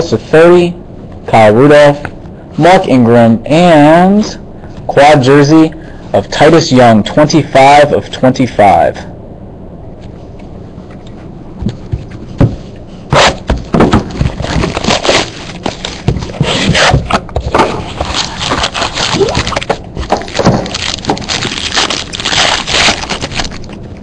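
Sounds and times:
wrapper and cardboard rustling: 12.3s - 24.0s.

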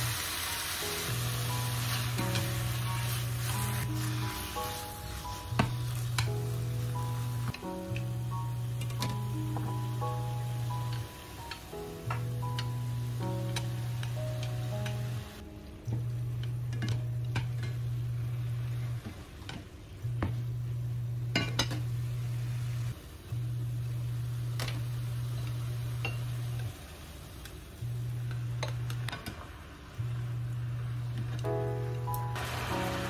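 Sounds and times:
stir-frying in a pan: 0.0s - 7.6s, 32.4s - 33.0s
low hum: 12.1s - 19.1s, 19.9s - 26.8s, 27.8s - 29.2s, 29.9s - 32.1s.

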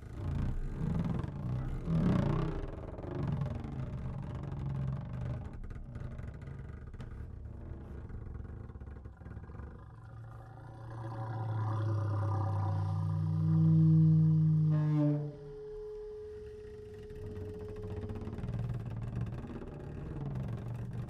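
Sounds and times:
low rumbling ensemble drone: 9.1s - 21.0s
sustained low tone: 9.2s - 21.0s.

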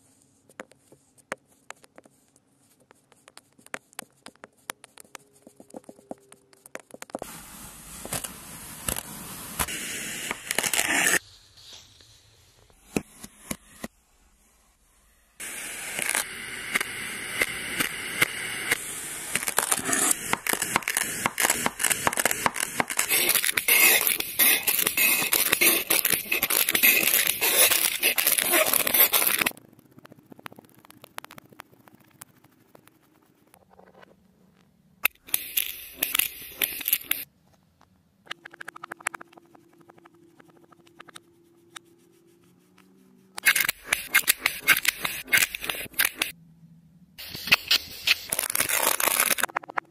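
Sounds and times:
sand pressed ticking: 15.9s - 33.5s, 35.0s - 37.3s, 47.2s - 49.6s
knife cutting crunchy sand: 19.4s - 29.5s.

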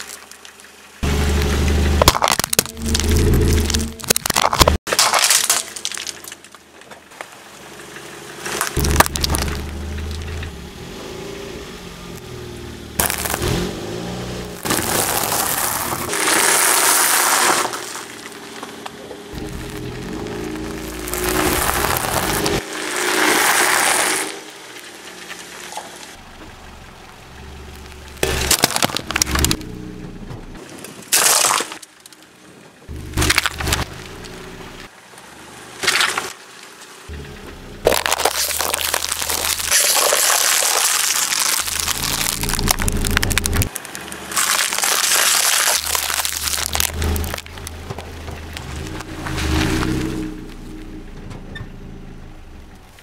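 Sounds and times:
car low rumble: 0.0s - 31.1s, 31.9s - 53.0s
tyre crunching pretzel sticks: 2.0s - 6.5s, 14.6s - 18.4s, 19.3s - 22.6s, 28.2s - 29.6s, 37.8s - 47.8s.

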